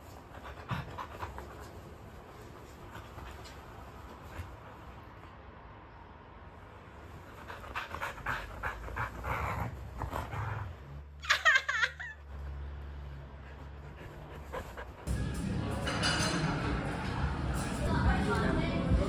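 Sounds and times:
dog panting: 0.0 - 5.2, 7.1 - 10.8, 13.1 - 15.2.

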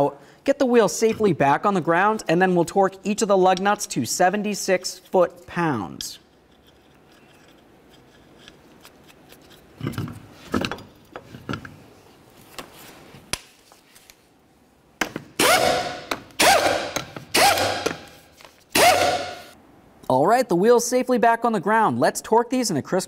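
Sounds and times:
impact gun bursts: 15.4 - 18.0.

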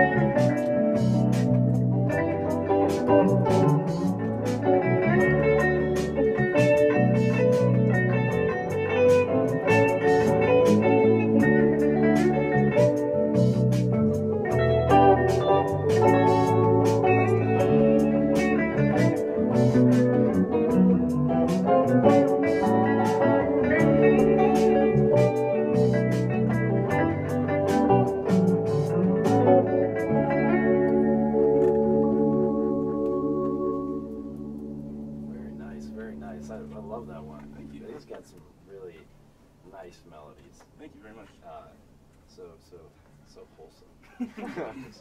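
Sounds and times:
live rock band playing: 0.0 - 34.6.

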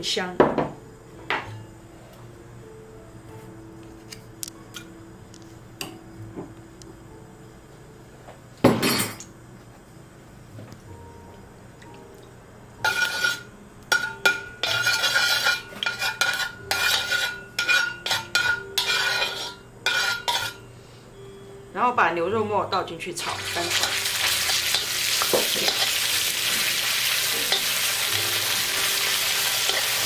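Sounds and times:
metal spatula scraping wok: 12.8 - 20.6, 23.4 - 30.0.

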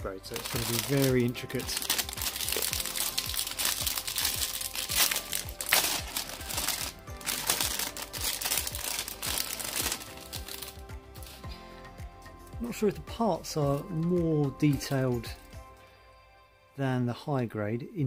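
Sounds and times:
background music: 0.0 - 18.0
plastic bag crinkling: 0.2 - 11.4.

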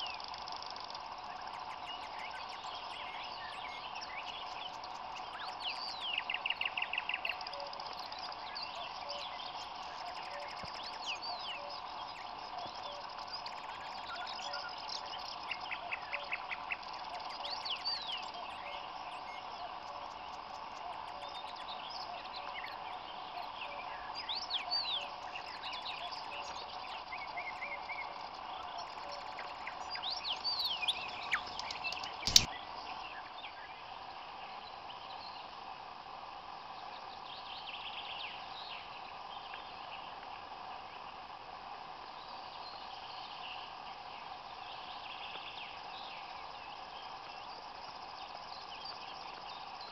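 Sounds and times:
birds singing: 0.0 - 49.9
chorus of frogs calling: 0.0 - 49.9
sharp click: 31.3 - 32.5.

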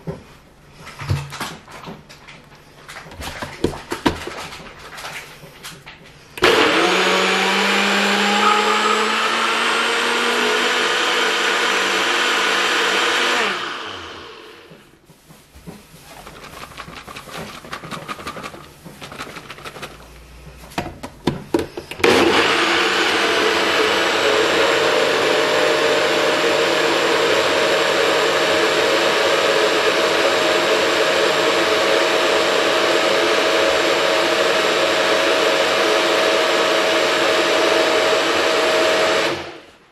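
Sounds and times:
blender cup knocking and clattering: 3.3 - 4.7, 16.4 - 20.0
blender motor whining: 6.4 - 14.8, 21.9 - 39.7.

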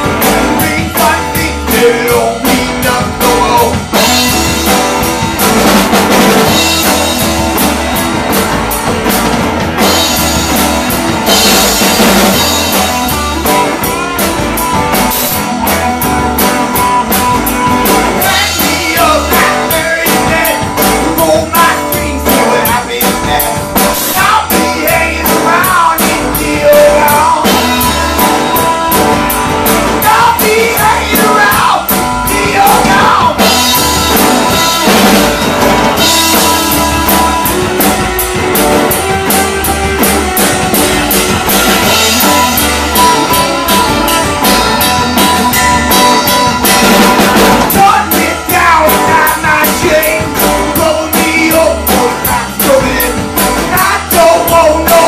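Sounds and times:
person singing: 0.0 - 4.7, 18.1 - 38.0, 41.8 - 55.0
drum kit steady beat: 0.0 - 55.0
electric and acoustic guitars: 0.0 - 55.0
live band through a pa: 0.0 - 55.0.

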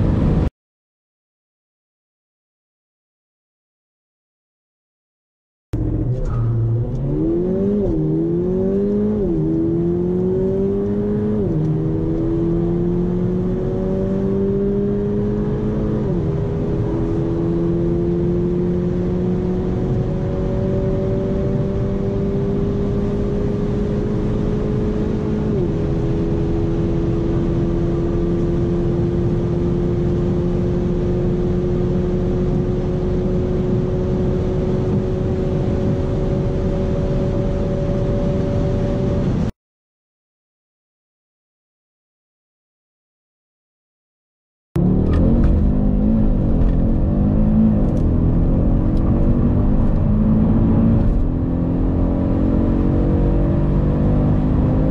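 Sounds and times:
car engine accelerating: 5.8 - 39.5, 44.8 - 54.9.

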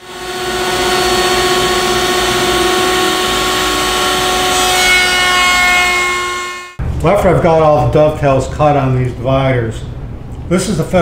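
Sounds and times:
router whining: 0.0 - 6.8.

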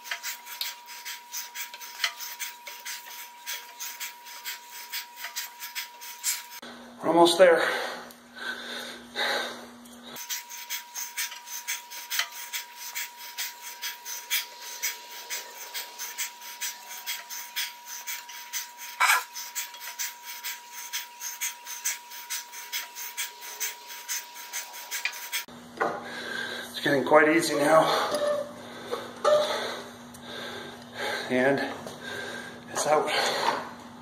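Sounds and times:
man breathing hard: 7.5 - 9.8, 26.0 - 26.8, 27.7 - 33.7.

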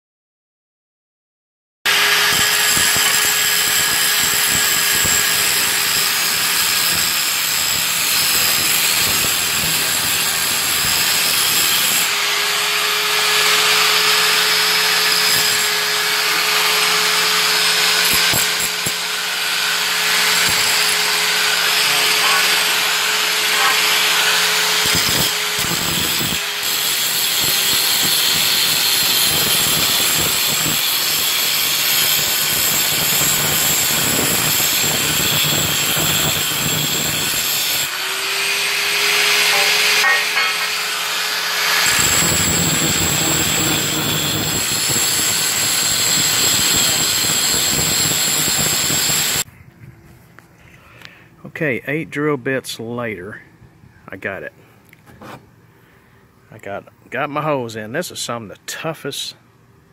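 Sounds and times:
angle grinder grinding metal: 1.9 - 49.5.

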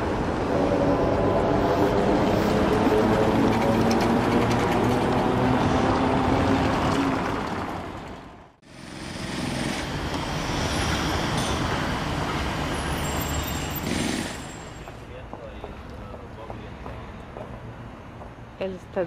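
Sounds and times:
road traffic rushing: 0.0 - 19.0.

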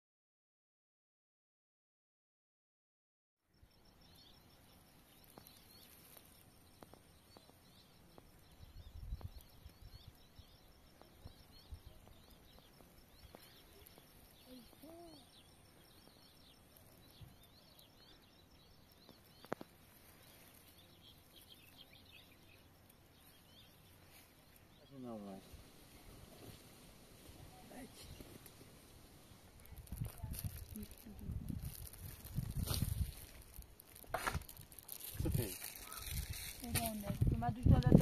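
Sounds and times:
small birds chirping: 3.6 - 38.0
wind rumble on microphone: 8.6 - 10.1, 29.6 - 33.3, 35.2 - 38.0.

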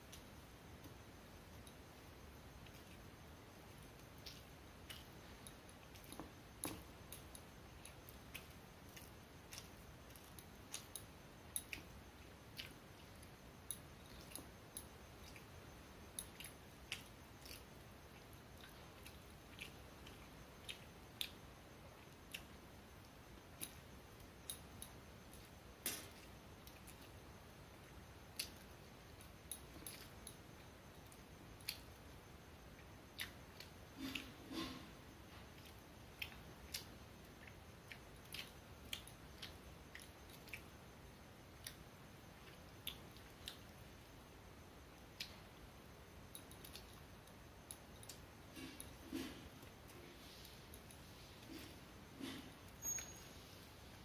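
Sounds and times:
chewing: 3.7 - 27.2, 27.8 - 32.1, 32.8 - 40.8, 41.5 - 43.9.

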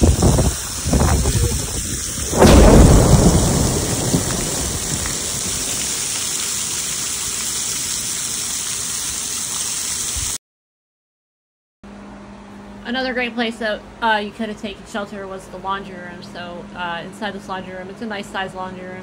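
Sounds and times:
thunder clap rumbling: 0.0 - 7.2
heavy rain pouring: 0.0 - 10.4.

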